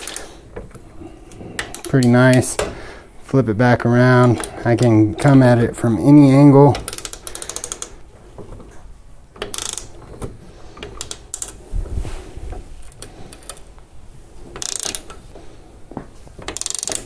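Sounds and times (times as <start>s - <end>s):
wrench ratcheting clicks: 6.8s - 8.0s, 9.4s - 10.0s, 10.8s - 11.6s, 14.6s - 15.2s, 16.5s - 17.0s.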